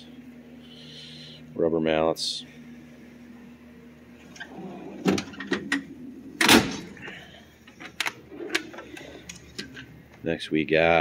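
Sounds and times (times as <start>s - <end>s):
drawer shutting clunk: 4.4s - 7.1s.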